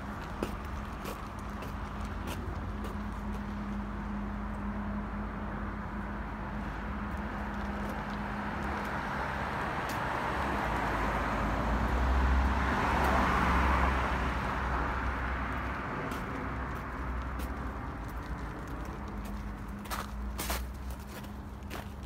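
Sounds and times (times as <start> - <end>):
car passing: 0.0 - 21.8.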